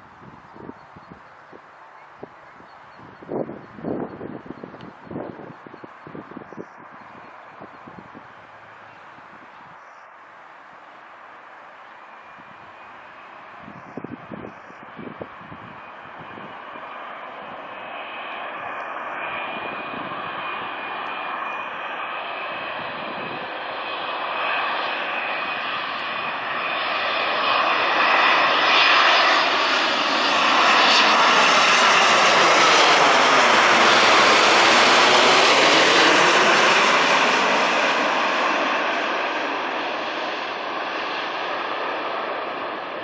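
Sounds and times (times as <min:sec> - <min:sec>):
jet airliner flying overhead: 0:00.0 - 0:43.0.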